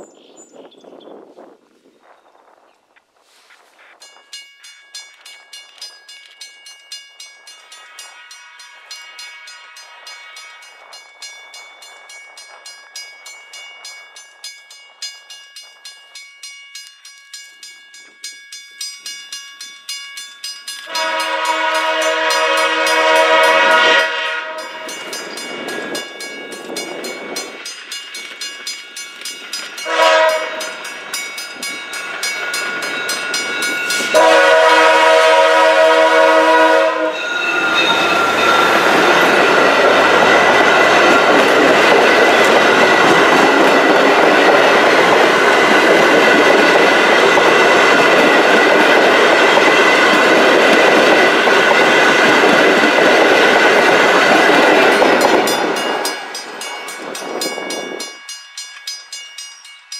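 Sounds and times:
train wheels on rails: 3.2s - 59.9s
locomotive horn: 7.8s - 10.6s, 20.9s - 24.9s, 29.8s - 30.8s, 34.1s - 38.0s.

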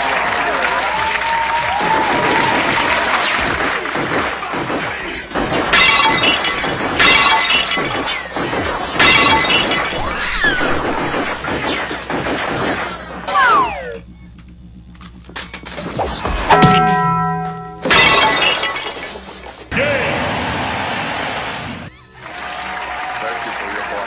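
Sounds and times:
rapid gunfire: 1.9s - 13.3s
glass shattering: 5.0s - 11.2s, 16.5s - 19.2s
ricochet whines: 9.0s - 14.0s
music: 12.8s - 18.1s, 21.8s - 24.0s.

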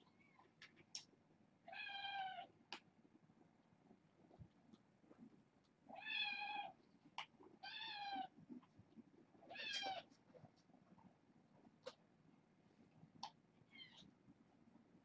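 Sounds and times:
kitten meowing: 9.5s - 10.0s.

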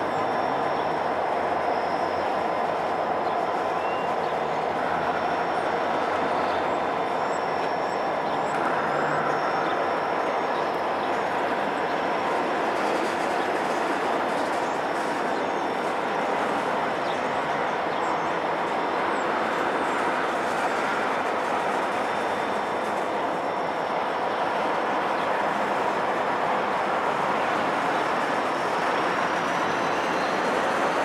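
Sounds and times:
diesel locomotive engines rumbling: 0.0s - 31.0s
wheel and rail noise: 0.0s - 31.0s.

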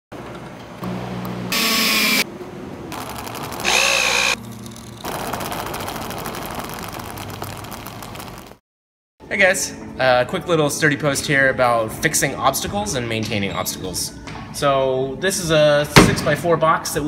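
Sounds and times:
power drill running: 1.5s - 2.2s, 3.4s - 4.4s
motor humming: 3.5s - 5.0s.

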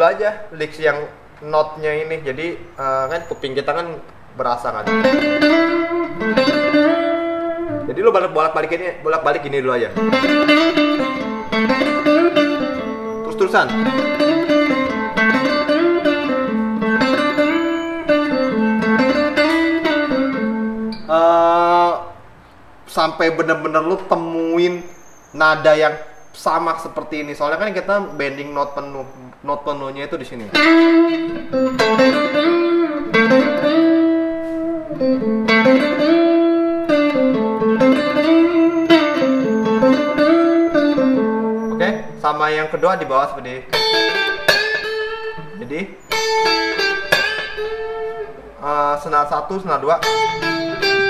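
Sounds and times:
electric guitar string bends: 4.8s - 8.6s, 10.0s - 21.6s, 30.4s - 42.3s, 43.6s - 48.8s, 49.8s - 51.0s.

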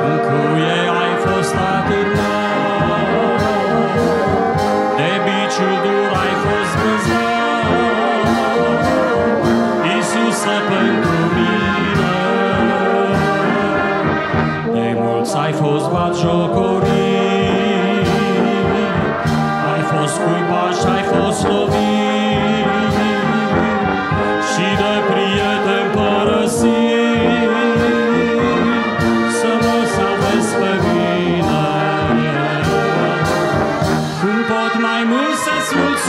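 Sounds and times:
brass band playing a hymn: 0.0s - 36.0s.

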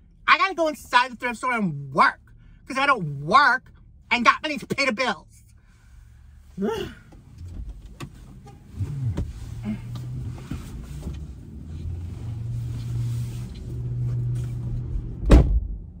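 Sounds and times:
low steady hum: 0.0s - 15.1s
car door thud: 15.2s - 15.6s.

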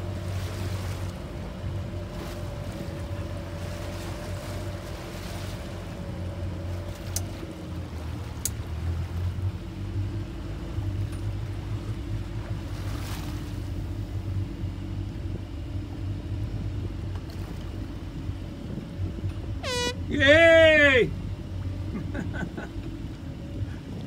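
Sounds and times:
boat engine running: 0.0s - 24.0s
water washing around hull: 0.0s - 24.0s
person shouting: 20.0s - 21.2s.

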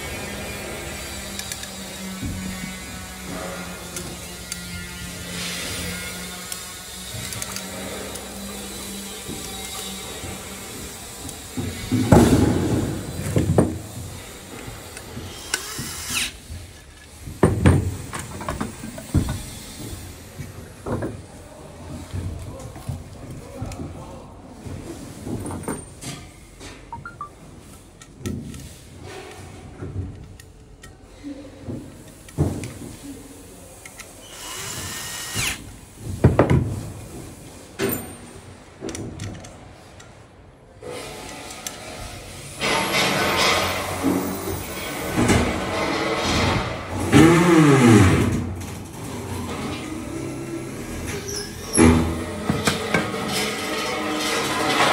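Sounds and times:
metal parts clanking on floor: 37.8s - 39.5s.

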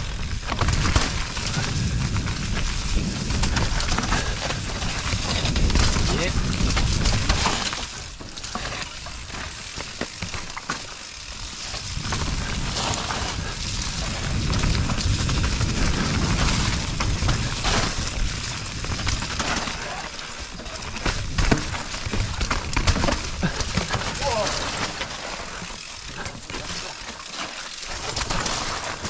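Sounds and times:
bike rattling over bumps: 0.0s - 29.0s
bike tyres hissing through mud: 0.0s - 29.0s.

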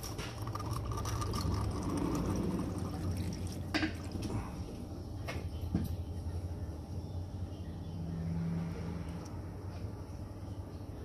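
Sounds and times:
oil trickling into drain pan: 0.0s - 4.3s
drips splashing into liquid: 0.0s - 4.4s.

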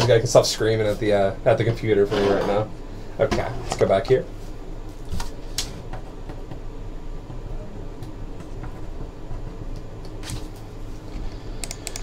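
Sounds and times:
low room hum: 0.0s - 12.0s
computer mouse clicks: 11.6s - 12.0s.

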